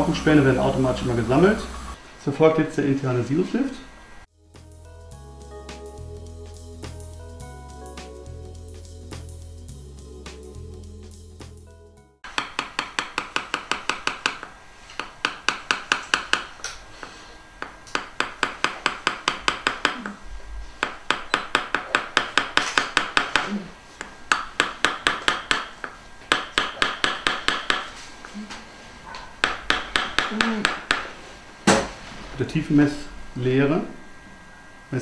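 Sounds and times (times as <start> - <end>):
mallet tapping metal chisel: 12.2 - 16.8, 17.6 - 20.2, 20.8 - 27.9, 29.4 - 31.1.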